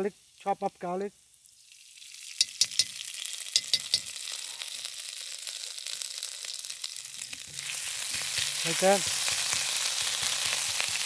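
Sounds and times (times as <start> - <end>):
garlic sizzling in hot oil: 0.0 - 11.0
spatula clicking against pan: 2.4 - 3.0, 3.6 - 4.1.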